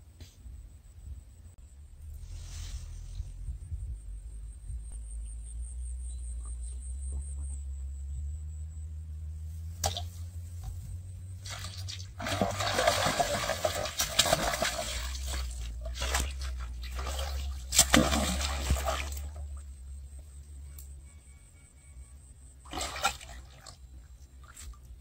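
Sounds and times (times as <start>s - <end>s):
fish thrashing in water: 11.4s - 19.6s, 22.7s - 23.8s.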